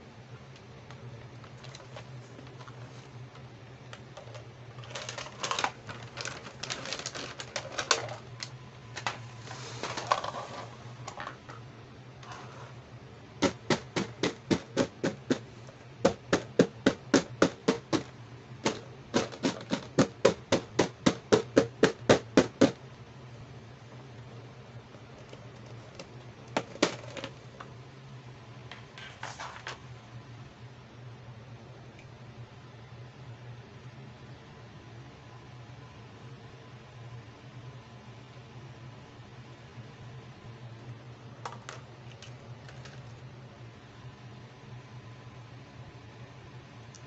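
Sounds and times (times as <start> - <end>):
plastic packaging crinkling: 4.2 - 10.7
fingers tapping plastic box: 13.4 - 15.4, 16.0 - 22.8.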